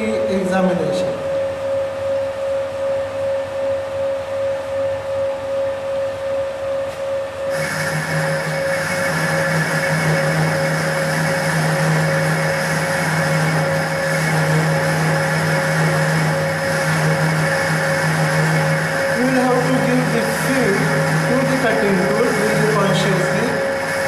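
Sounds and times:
lathe machine hum: 0:07.4 - 0:24.0.

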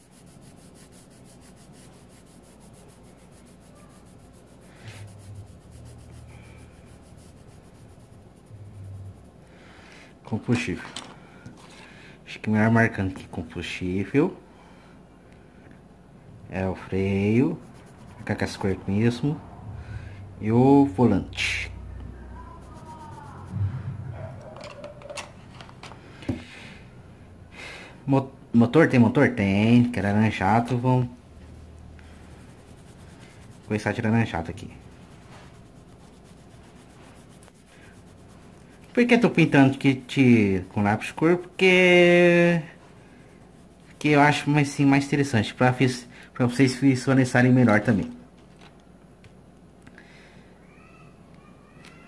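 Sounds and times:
pencil scribbling on paper: 0:00.0 - 0:09.4, 0:17.0 - 0:18.8, 0:22.4 - 0:24.3, 0:31.4 - 0:45.9.

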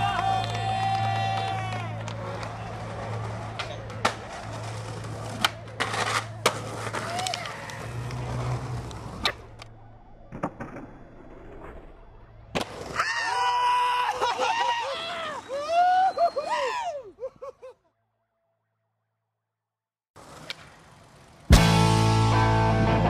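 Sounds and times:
skateboard wheels rolling on pavement: 0:00.0 - 0:16.5, 0:20.2 - 0:21.6
skateboard pops and clacks: 0:03.4 - 0:08.2.

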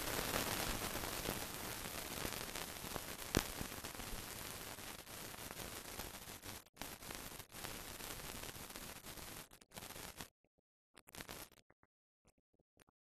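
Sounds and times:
film soundtrack hiss: 0:00.0 - 0:10.2.

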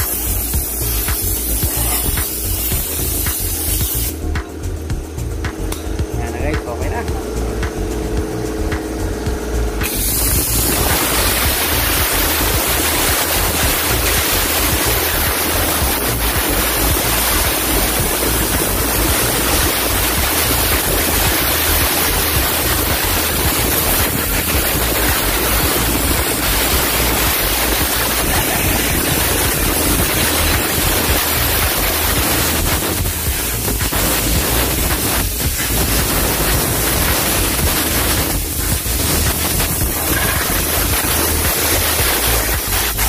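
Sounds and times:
compressed air hissing: 0:00.0 - 0:09.1, 0:09.8 - 0:43.0.

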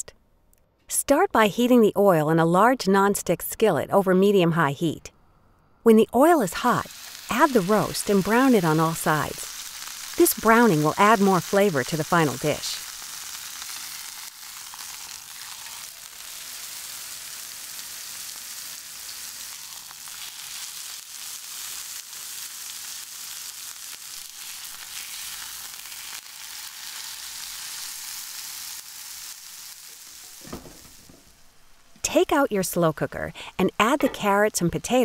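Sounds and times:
beef sizzling in hot oil: 0:06.8 - 0:31.3.

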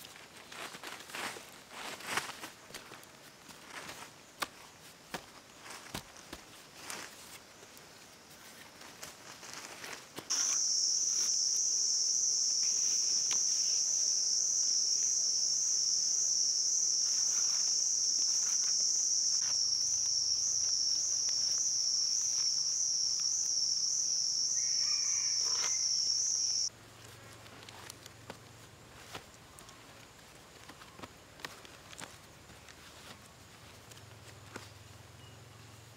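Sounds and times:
dry vines rustling and clicking: 0:00.0 - 0:10.4, 0:27.0 - 0:34.7
insect shrill buzzing call: 0:10.3 - 0:26.7.

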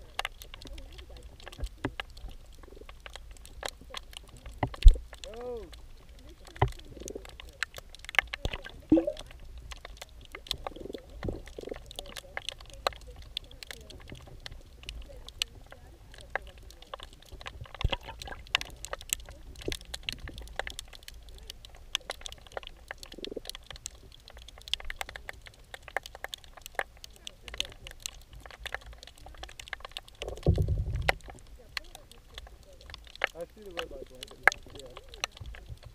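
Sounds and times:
low underwater rumble: 0:00.0 - 0:35.9
underwater clicks and ticks: 0:00.0 - 0:35.9
short gurgles: 0:08.8 - 0:09.3.

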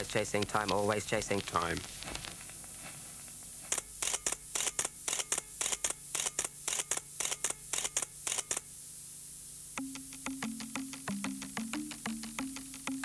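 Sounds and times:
rapid sharp clicks: 0:00.0 - 0:02.5, 0:03.6 - 0:08.7.

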